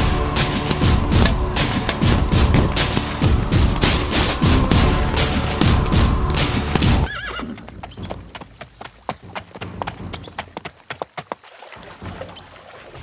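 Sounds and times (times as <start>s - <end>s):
loud film score with hits: 0.0s - 7.1s
hooves clip-clopping: 0.0s - 13.0s.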